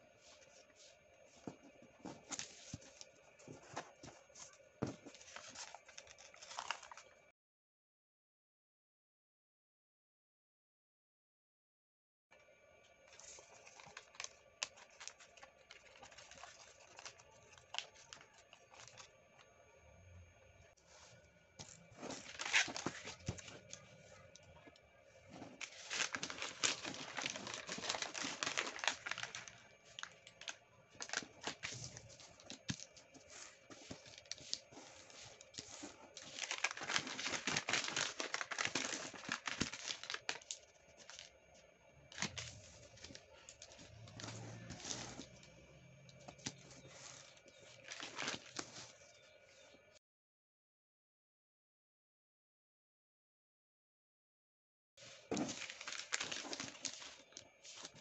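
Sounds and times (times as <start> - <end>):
paper rustling and crinkling: 0.1 - 7.2, 13.1 - 19.4, 20.8 - 41.4, 42.1 - 49.3, 55.0 - 58.0.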